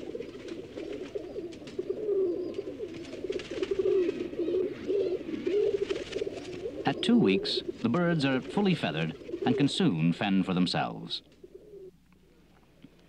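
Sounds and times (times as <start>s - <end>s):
pigeons cooing: 0.0s - 12.4s
faint clicks: 12.0s - 13.0s.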